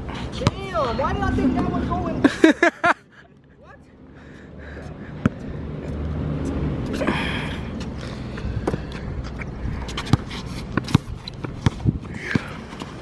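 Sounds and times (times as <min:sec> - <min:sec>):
basketball bouncing on asphalt: 0:00.3 - 0:01.1, 0:04.8 - 0:07.0, 0:07.8 - 0:13.0
low rumble: 0:00.8 - 0:02.7.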